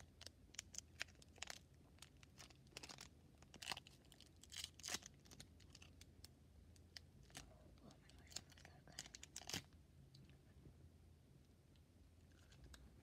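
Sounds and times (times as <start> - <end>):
plastic wrapper crinkling: 0.0 - 6.3, 6.9 - 9.8.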